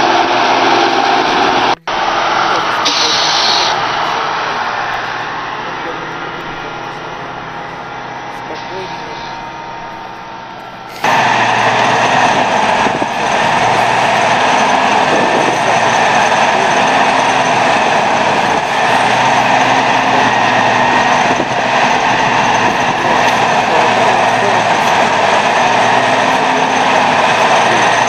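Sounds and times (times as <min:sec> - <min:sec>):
tractor engine under load: 0:00.0 - 0:28.0.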